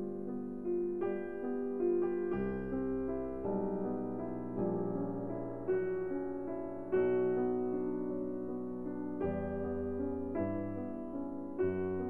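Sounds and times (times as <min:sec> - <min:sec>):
slow piano chords: 0:00.0 - 0:12.0.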